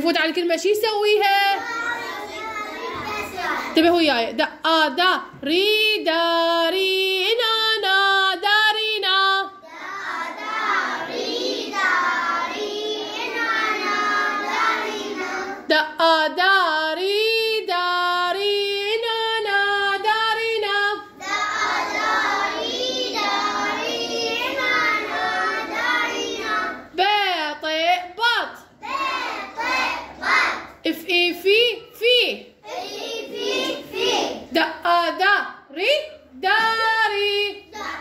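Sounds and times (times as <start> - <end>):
children singing a chant: 1.6 - 3.8, 9.4 - 15.7, 20.6 - 27.0, 28.8 - 30.8, 32.6 - 34.6, 37.4 - 38.0.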